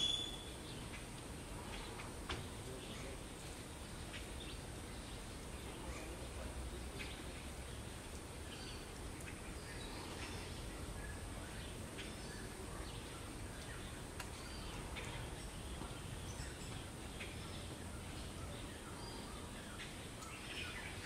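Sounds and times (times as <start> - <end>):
faint bird chirps: 0.0 - 2.0.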